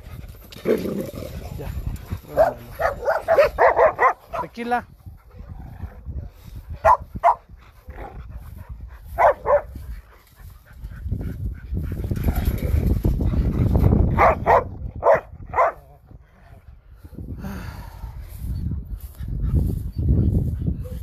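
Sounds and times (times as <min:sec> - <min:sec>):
dogs barking: 0:02.0 - 0:04.6, 0:06.8 - 0:09.8, 0:14.1 - 0:15.9.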